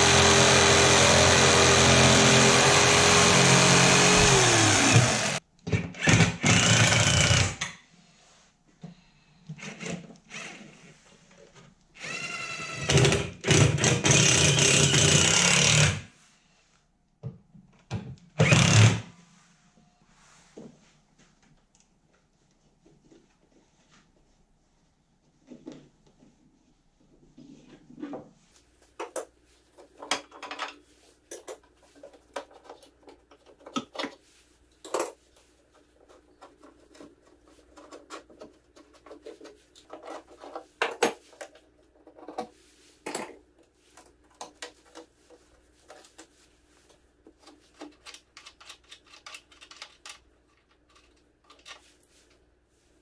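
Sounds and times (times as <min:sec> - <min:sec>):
tools scraping wood and metal: 0:00.0 - 0:05.4, 0:34.8 - 0:46.4.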